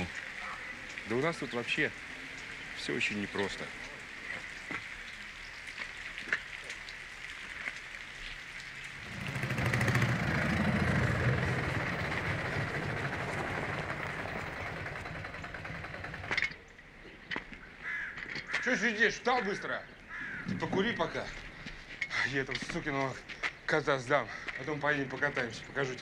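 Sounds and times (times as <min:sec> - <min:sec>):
vehicle engine running: 0:09.0 - 0:16.4.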